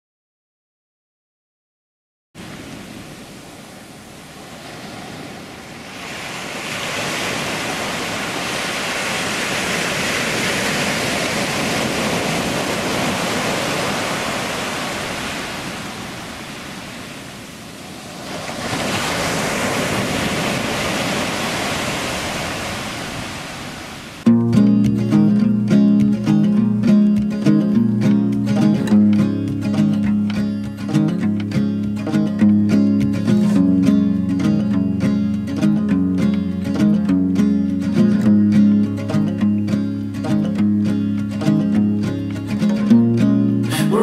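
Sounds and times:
small waves washing on beach: 2.4 - 24.3.

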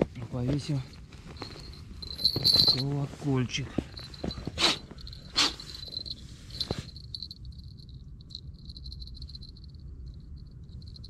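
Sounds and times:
small bell tinkling: 0.7 - 3.0, 3.9 - 11.0
gloved hands rustling: 0.8 - 7.3.

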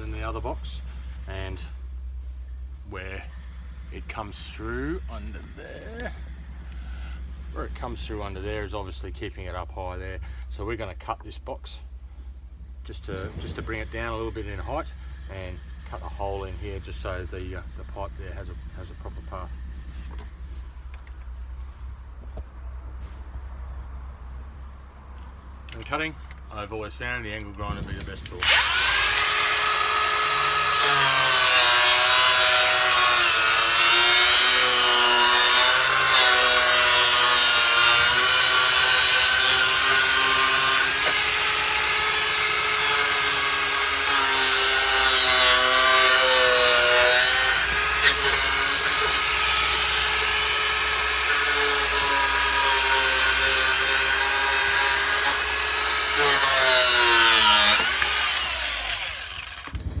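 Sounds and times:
angle grinder cutting plastic: 28.3 - 59.9.

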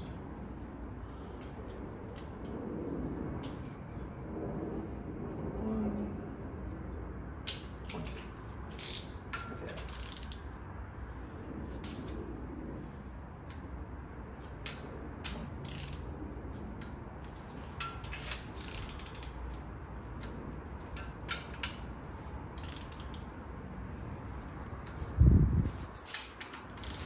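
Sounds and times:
torque wrench ratchet clicking: 8.8 - 10.4, 14.6 - 16.0, 17.8 - 19.4, 22.6 - 23.3, 26.4 - 27.0.

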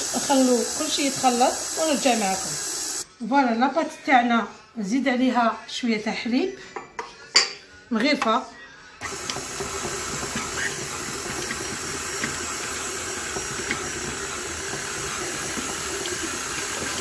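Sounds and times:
stand mixer running: 9.0 - 17.0.

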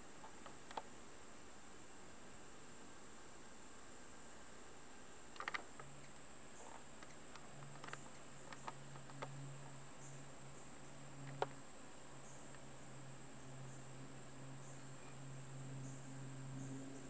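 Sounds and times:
light clicks and taps: 5.4 - 9.4
high-pitched insect drone: 5.4 - 17.0.

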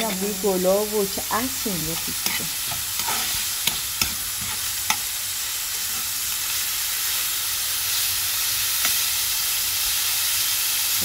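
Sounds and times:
peel sizzling in oil: 0.0 - 11.0.

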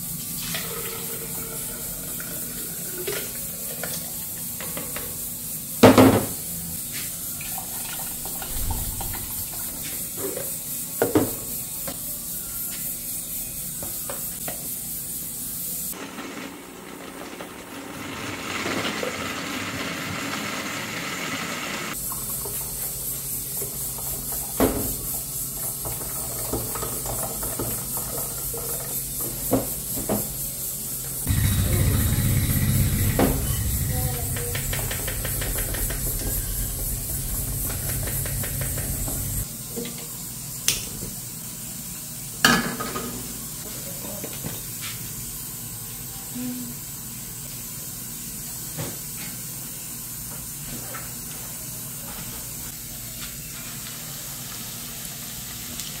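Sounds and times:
steady hiss: 28.9 - 39.5.

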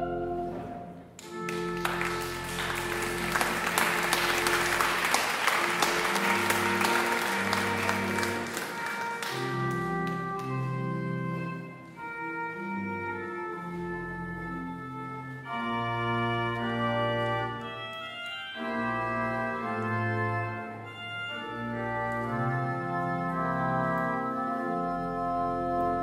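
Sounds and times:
organ playing sustained chords: 0.0 - 26.0.

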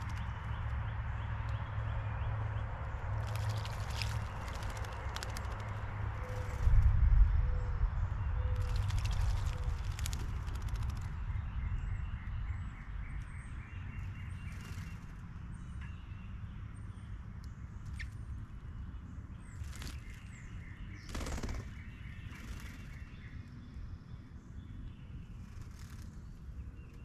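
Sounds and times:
low steady rumble: 0.0 - 20.5
small birds chirping: 0.0 - 27.0
bird splashing in birdbath: 3.2 - 5.9.

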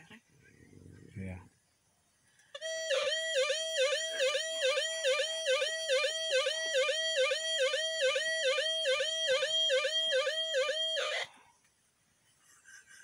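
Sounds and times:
electronic alarm warbling: 2.6 - 11.3.

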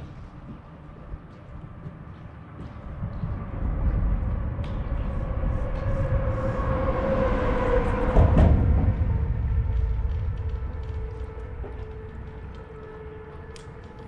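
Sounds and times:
steady whine: 2.4 - 14.0
vehicle rumbling over bridge: 3.3 - 13.2.

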